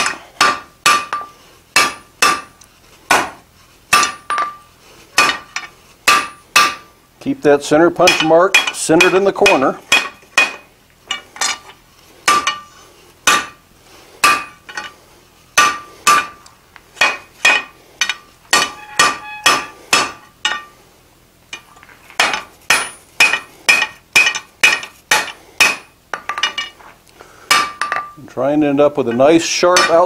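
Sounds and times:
hammer ringing on anvil: 18.5 - 20.7.

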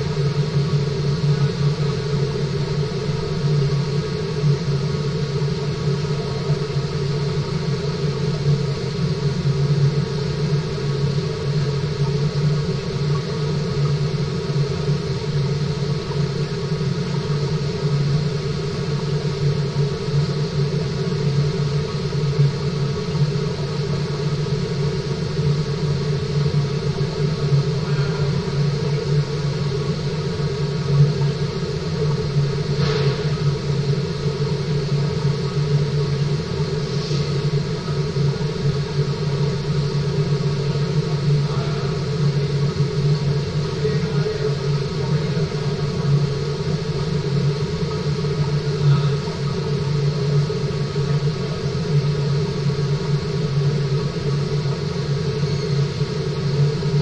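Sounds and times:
low hum: 0.0 - 57.0.

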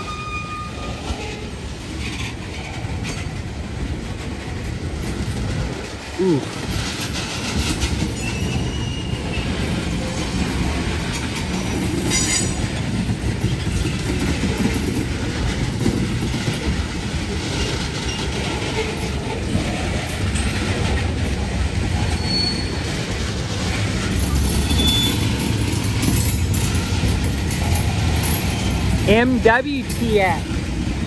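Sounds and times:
train wheels rumbling on rail: 0.0 - 31.0
high wheel squeal: 8.2 - 9.4, 22.1 - 22.9, 24.4 - 25.3.

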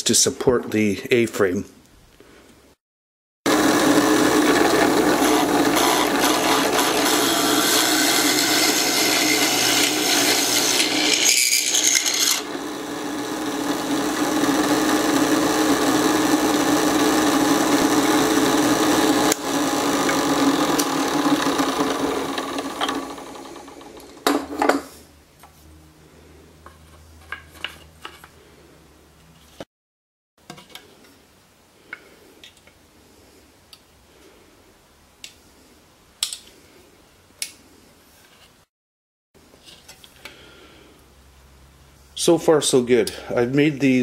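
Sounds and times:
drill bit grinding through wood: 3.5 - 24.2
drill press motor humming: 3.5 - 24.5.

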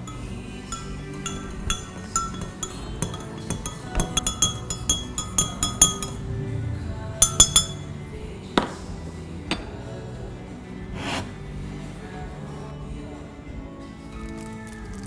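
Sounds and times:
spoon clinking against glass jug: 0.0 - 6.3, 7.2 - 7.9.

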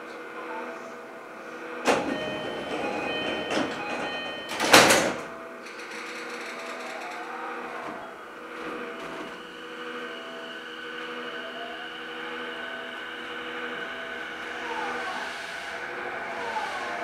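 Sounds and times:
train mechanical hum: 0.0 - 17.0
train doors shutting with bang: 1.8 - 7.2
short beeping chime tones: 1.9 - 4.9.

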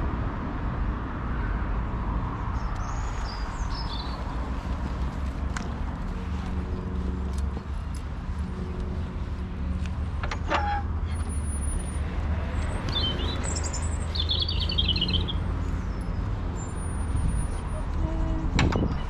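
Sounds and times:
small birds chirping: 2.6 - 4.8, 12.6 - 16.9.

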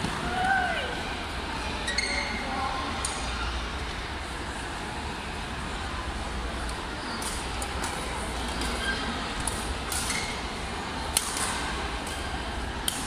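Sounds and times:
sports hall noise: 0.0 - 13.0
shoe squeaks: 1.8 - 2.5, 8.6 - 9.2.

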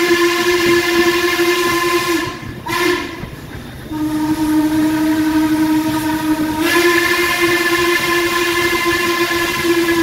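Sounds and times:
steam locomotive whistle blasts: 0.0 - 10.0.

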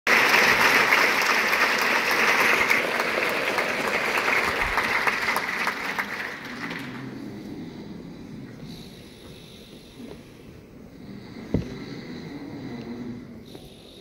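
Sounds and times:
audience applauding: 0.1 - 7.2.

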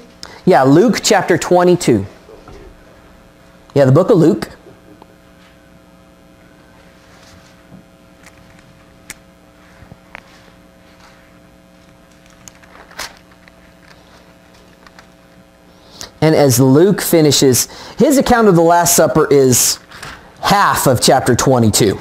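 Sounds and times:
electrical hum: 0.0 - 22.0
pages turning: 11.8 - 15.4.

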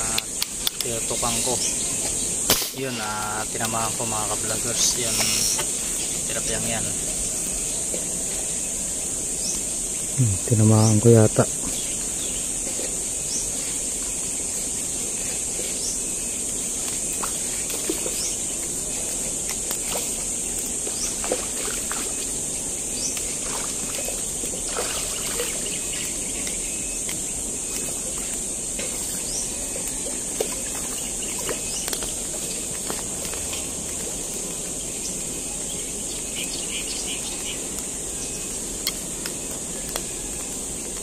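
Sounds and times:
high-pitched insect drone: 0.0 - 41.0
water sloshing at pond edge: 16.8 - 26.7, 29.9 - 34.1.

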